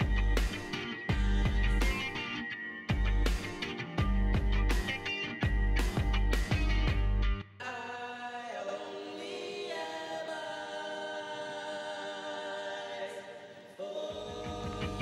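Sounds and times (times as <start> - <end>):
drums and bass: 0.0 - 2.2, 2.9 - 7.4, 14.2 - 15.0
choir-like voices singing chords: 0.0 - 3.6, 7.6 - 15.0.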